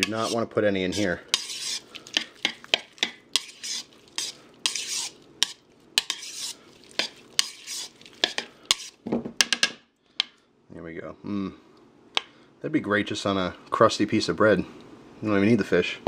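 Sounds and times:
spoon stirring wet mix: 0:00.0 - 0:09.0.

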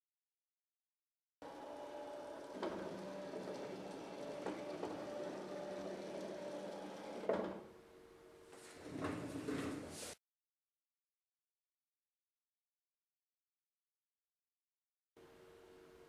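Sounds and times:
electric motors humming: 0:01.4 - 0:09.5.

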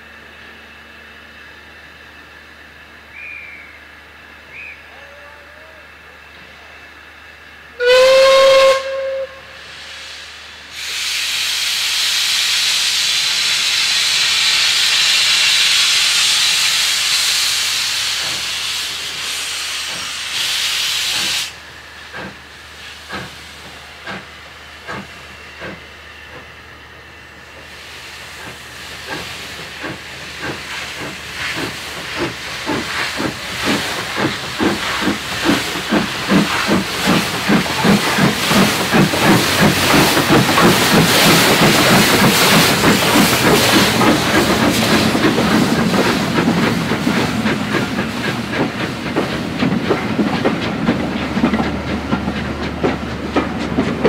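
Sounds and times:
steam locomotive exhaust beats: 0:00.0 - 0:54.0
steam locomotive whistle: 0:03.1 - 0:03.8, 0:04.5 - 0:05.6, 0:07.8 - 0:14.1
loud hiss of steam: 0:07.7 - 0:54.0.

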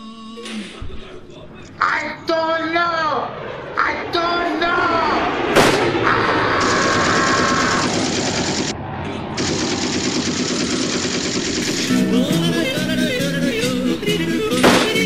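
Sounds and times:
steady whine: 0:00.0 - 0:15.0
rapid automatic gunfire: 0:06.5 - 0:08.8, 0:09.4 - 0:12.0.

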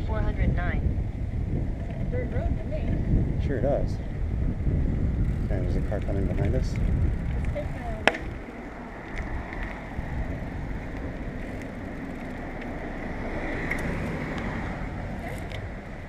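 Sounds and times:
tyre and road noise: 0:00.0 - 0:16.0
wind on microphone: 0:00.0 - 0:16.0
bicycle rattling clicks: 0:05.2 - 0:16.0
car passing by: 0:08.6 - 0:16.0.

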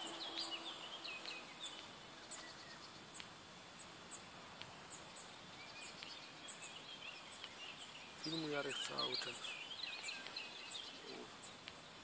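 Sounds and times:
birds chirping and warbling: 0:00.0 - 0:12.0
thin high ticks: 0:01.2 - 0:03.4, 0:05.9 - 0:06.2.

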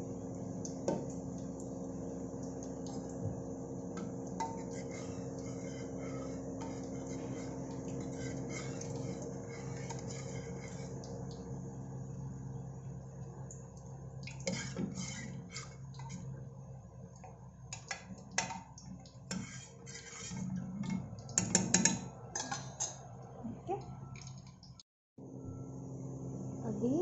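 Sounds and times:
steady low hum: 0:00.0 - 0:27.0
spoon scraping and clinking pot: 0:04.0 - 0:11.0.

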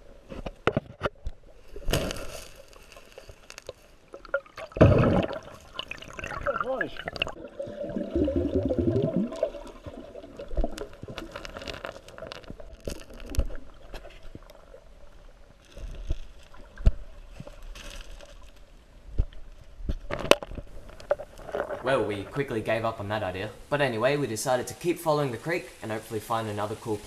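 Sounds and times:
muffled underwater water movement: 0:00.0 - 0:23.9
bubbling and gurgling: 0:04.0 - 0:15.6.

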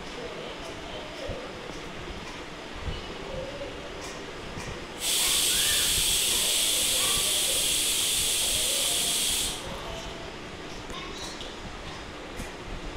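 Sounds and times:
loud steady hiss: 0:05.0 - 0:09.7.

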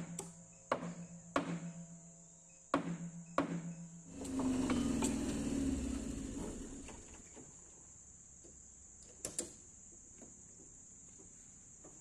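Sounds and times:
low mechanical rumble: 0:04.1 - 0:07.4.

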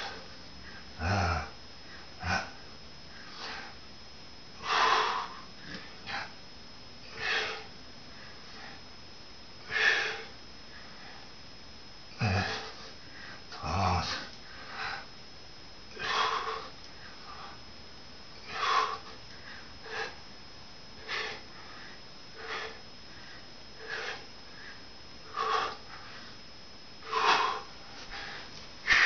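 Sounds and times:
man breathing hard: 0:00.0 - 0:03.8, 0:04.6 - 0:06.4, 0:07.0 - 0:08.8, 0:09.6 - 0:11.4, 0:12.2 - 0:15.1, 0:15.9 - 0:17.6, 0:18.4 - 0:20.3, 0:21.0 - 0:26.4, 0:27.0 - 0:29.0.

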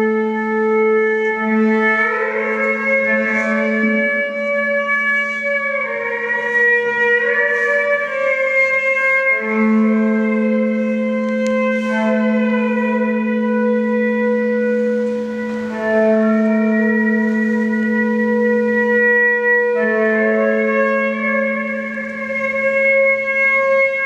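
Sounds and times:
low drone note: 0:00.0 - 0:24.0
slow sustained chords: 0:00.0 - 0:24.0.

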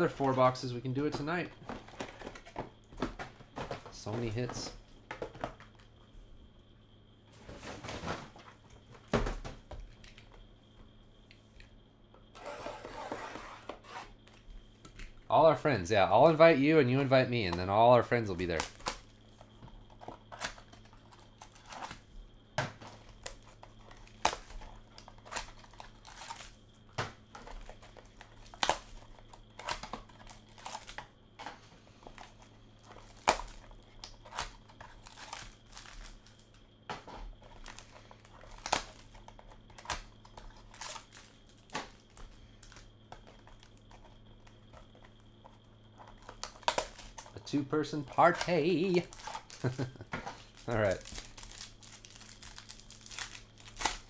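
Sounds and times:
cellophane tearing and crinkling: 0:18.5 - 0:19.0, 0:23.0 - 0:26.6, 0:27.6 - 0:31.0, 0:32.8 - 0:36.5, 0:37.5 - 0:43.8, 0:46.0 - 0:47.5, 0:48.2 - 0:54.0.

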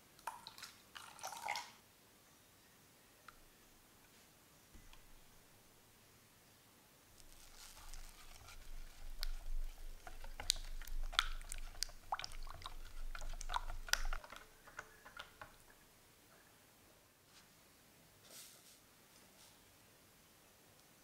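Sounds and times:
whisk clicking against glass bowl: 0:08.4 - 0:15.7.

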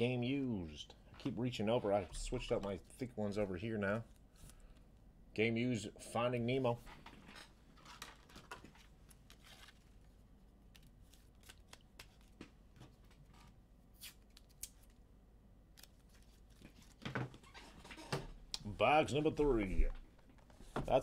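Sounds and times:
low steady hum: 0:00.0 - 0:21.0
small clicks and rustles of cards: 0:07.8 - 0:15.0, 0:15.7 - 0:17.2.

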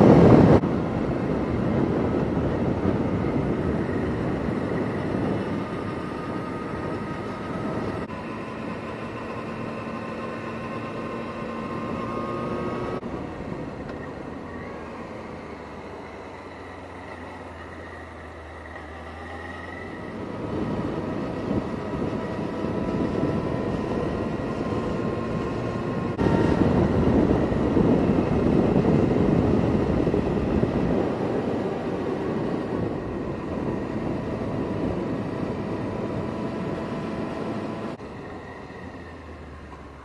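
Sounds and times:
wind on microphone: 0:00.0 - 0:08.1, 0:19.8 - 0:38.0.

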